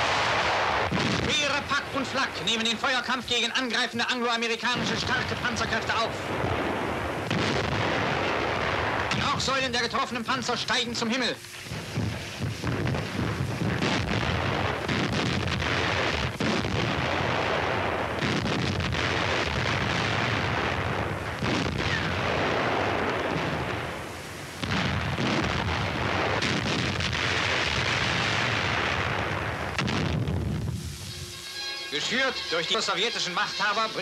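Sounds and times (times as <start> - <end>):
artillery guns firing: 0.0 - 10.8, 11.6 - 30.6
shells exploding with heavy booms: 0.0 - 10.8, 11.6 - 31.4.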